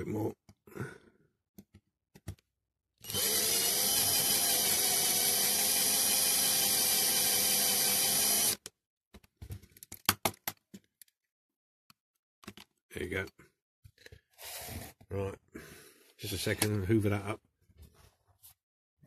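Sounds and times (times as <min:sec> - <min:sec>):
cordless drill drilling: 0:03.0 - 0:08.6.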